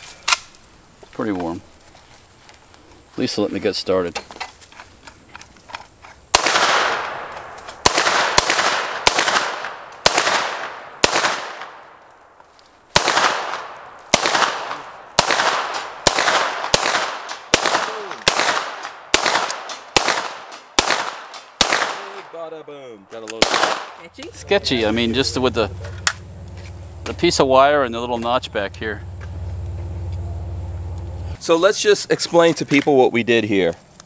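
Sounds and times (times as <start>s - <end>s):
gunshots with long echo: 6.3s - 12.1s, 12.9s - 22.8s, 23.4s - 24.0s.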